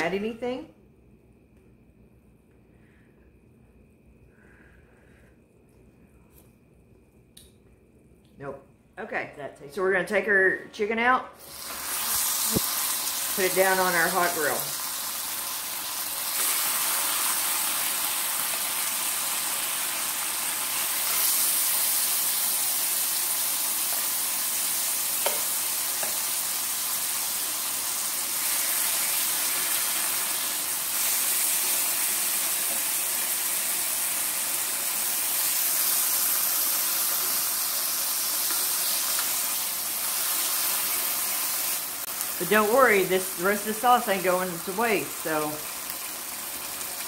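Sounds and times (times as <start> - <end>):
chicken sizzling on a grill: 11.4 - 47.0.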